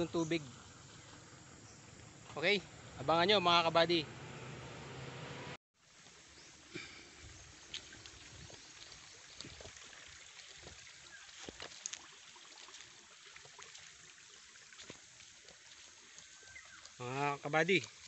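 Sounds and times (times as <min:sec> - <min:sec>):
footsteps tapping and rustling: 0:10.5 - 0:12.0.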